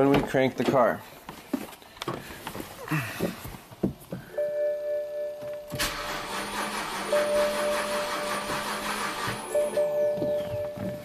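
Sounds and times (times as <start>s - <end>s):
car starter cranking: 5.7s - 10.0s
electronic chime tone: 9.4s - 11.0s.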